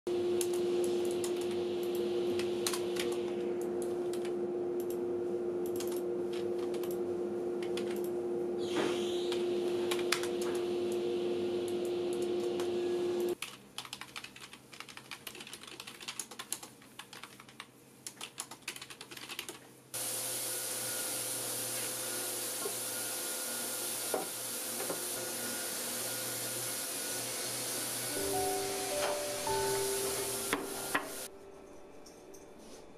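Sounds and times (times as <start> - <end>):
steady hum: 0.1 - 13.4
keyboard and mouse clicking: 5.6 - 6.0, 13.4 - 19.6.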